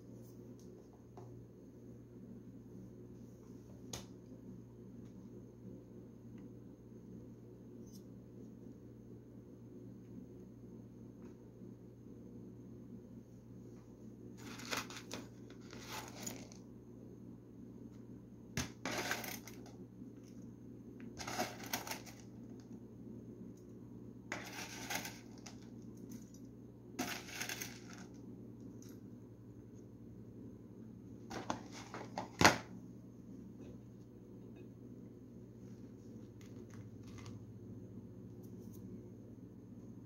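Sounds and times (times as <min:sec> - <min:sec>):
potato sticks rattling in tub: 0:18.6 - 0:19.7, 0:21.2 - 0:22.3, 0:24.3 - 0:25.6, 0:27.0 - 0:28.1.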